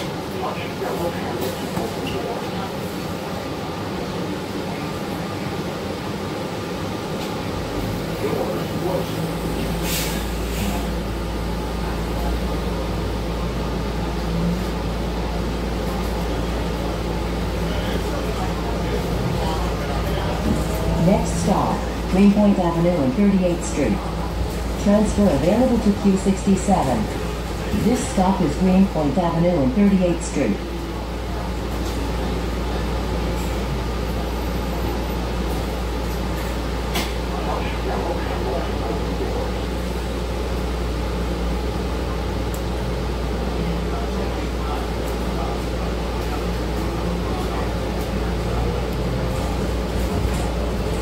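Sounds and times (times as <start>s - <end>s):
bus engine and road rumble: 0.0s - 51.0s
short air hisses: 9.8s - 10.7s.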